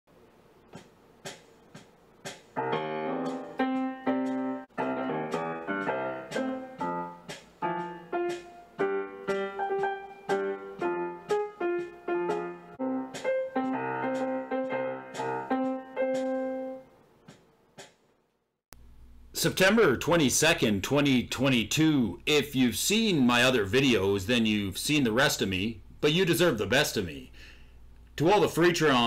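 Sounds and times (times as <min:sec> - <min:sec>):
piano-like keyboard melody: 0:02.6 - 0:17.0.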